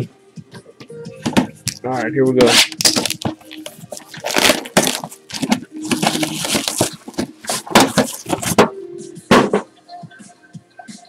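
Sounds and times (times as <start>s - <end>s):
plastic shrink wrap crinkling and tearing: 2.4s - 8.6s.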